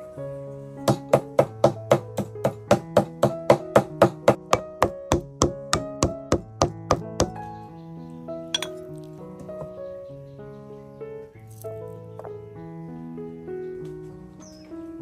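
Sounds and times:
background music: 0:00.0 - 0:15.0
cleaver chopping on a block: 0:00.9 - 0:07.4.

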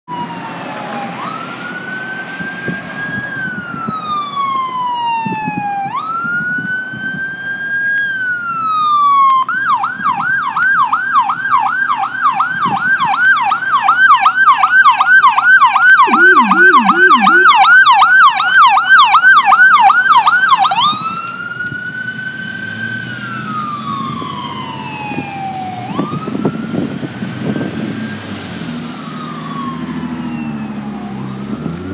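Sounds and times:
ambulance siren wailing: 0:00.1 - 0:31.9
ambulance siren yelp: 0:00.1 - 0:31.9
low-pitched siren sweeps: 0:13.0 - 0:31.6.

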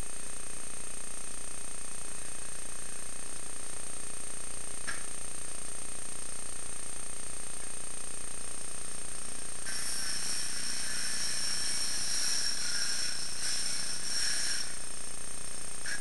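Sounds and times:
power saw cutting: 0:09.6 - 0:15.0.

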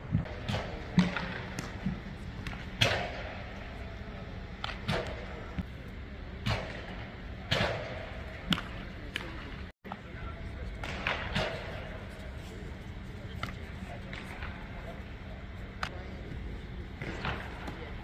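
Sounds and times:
baseballs smacking into gloves: 0:00.4 - 0:03.2, 0:08.4 - 0:09.4.

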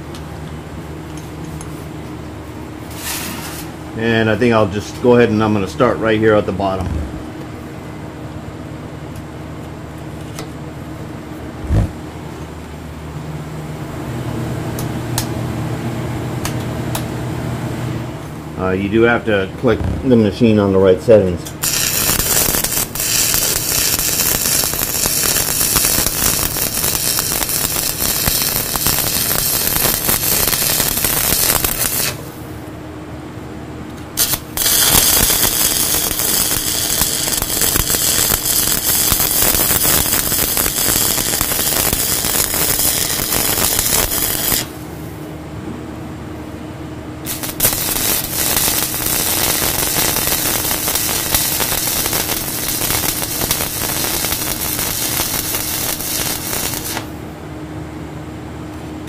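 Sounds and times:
welding arc crackling: 0:02.9 - 0:03.8, 0:21.6 - 0:32.4, 0:34.2 - 0:45.0, 0:47.2 - 0:57.2.

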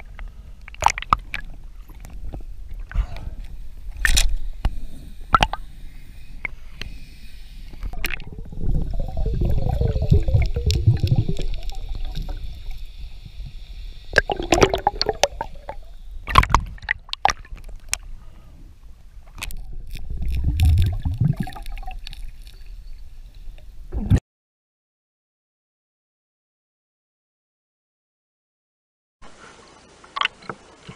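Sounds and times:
muffled underwater gurgling: 0:07.9 - 0:12.8, 0:14.1 - 0:16.9.

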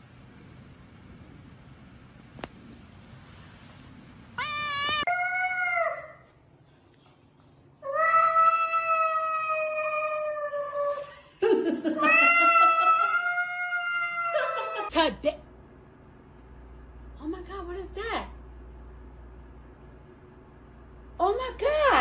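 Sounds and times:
cat yowling: 0:07.9 - 0:11.0, 0:12.0 - 0:14.9.

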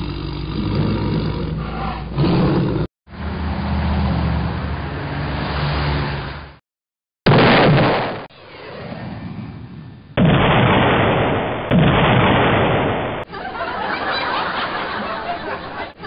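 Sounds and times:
loud explosions: 0:07.3 - 0:13.3
rocket whoosh: 0:07.4 - 0:13.2
crowd laughing: 0:13.3 - 0:16.0.

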